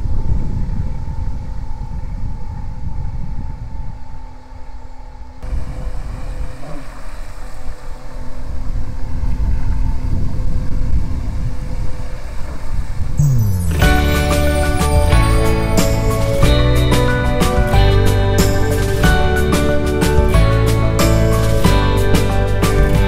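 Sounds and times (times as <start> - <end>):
model boat motor whine: 5.4 - 15.8
heavy low rumble: 5.4 - 23.0
propeller wash churning: 5.5 - 8.8.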